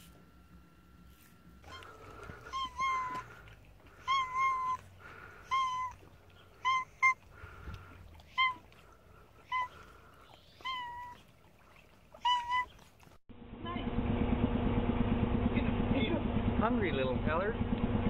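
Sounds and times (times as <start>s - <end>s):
cat meowing: 1.6s - 3.4s, 4.0s - 7.2s, 8.3s - 8.7s, 12.2s - 12.7s.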